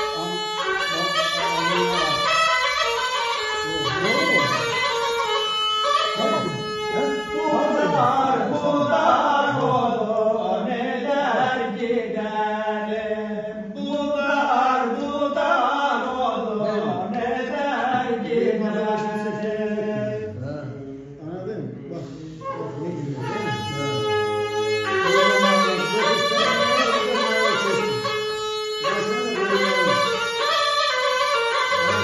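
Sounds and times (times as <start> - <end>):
man singing unaccompanied: 6.2 - 23.9, 24.6 - 32.0.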